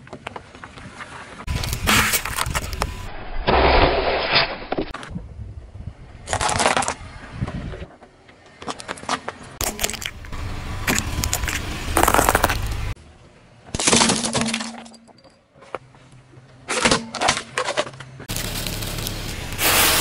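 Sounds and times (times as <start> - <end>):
tyre crushing plastic toys: 9.6 - 13.0, 13.8 - 15.0.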